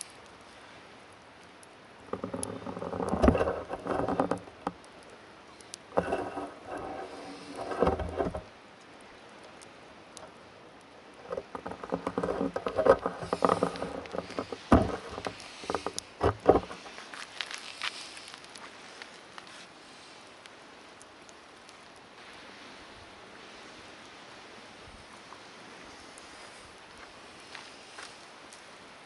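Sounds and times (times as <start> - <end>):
footsteps crunching on gravel: 16.8 - 18.8.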